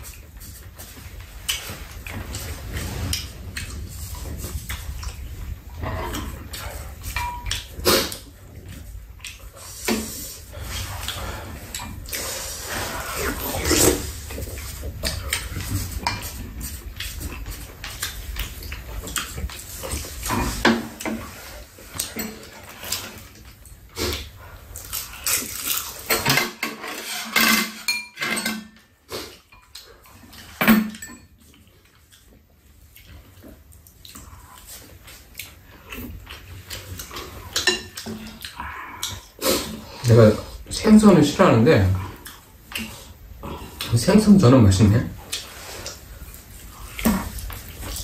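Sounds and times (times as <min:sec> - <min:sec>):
chewing: 0:00.0 - 0:26.3, 0:29.0 - 0:30.6, 0:31.4 - 0:40.7, 0:41.9 - 0:44.0, 0:45.1 - 0:48.0
slurping soup: 0:09.3 - 0:26.1
utensils clinking on ceramic bowls: 0:26.1 - 0:28.9, 0:30.6 - 0:31.4.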